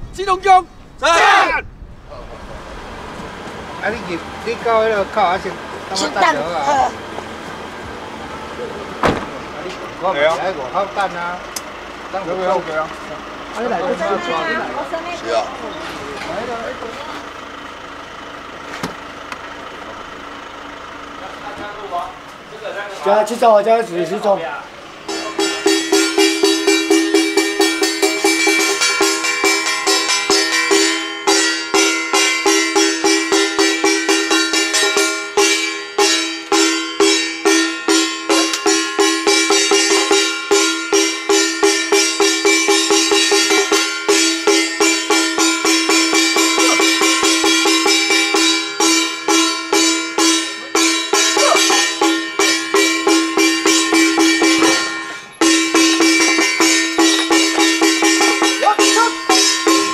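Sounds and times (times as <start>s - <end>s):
held high tone: 24.6s - 59.9s
fast percussion beat: 25.0s - 59.9s.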